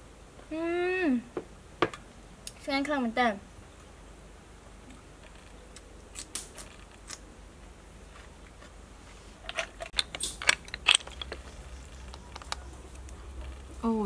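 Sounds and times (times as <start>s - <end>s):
snail shells clicking together: 9.8s - 13.8s.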